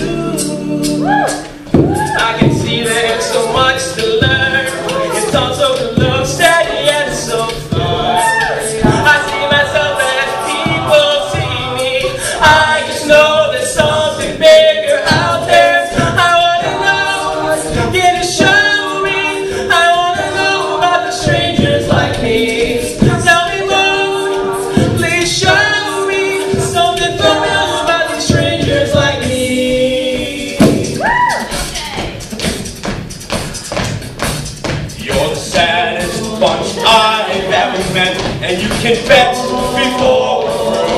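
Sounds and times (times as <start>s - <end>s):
men singing in harmony: 0.0s - 31.0s, 34.9s - 40.9s.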